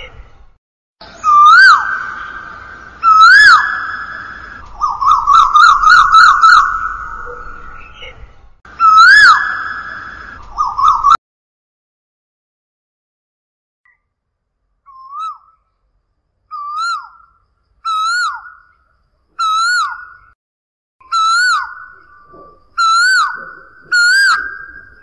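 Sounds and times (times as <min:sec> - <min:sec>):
koel calling whistled notes: 0:01.0 - 0:07.8, 0:08.8 - 0:11.2, 0:14.9 - 0:15.7, 0:16.5 - 0:18.8, 0:19.4 - 0:20.4, 0:21.0 - 0:25.0.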